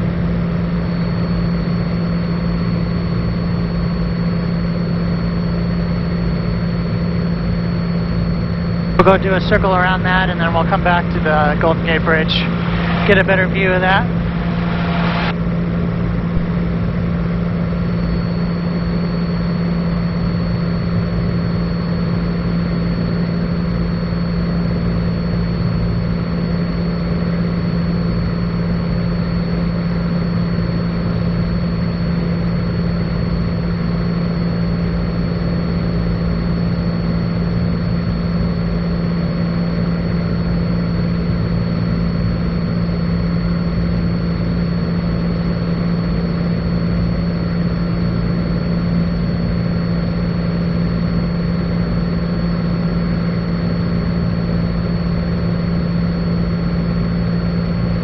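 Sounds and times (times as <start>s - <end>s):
plane engine and propeller droning: 0.0s - 58.0s
thin high whine: 7.9s - 20.0s.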